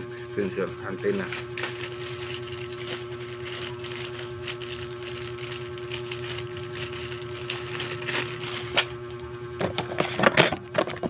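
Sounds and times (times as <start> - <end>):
steady motor hum: 0.0 - 11.0
plastic bag rustling: 0.4 - 9.2.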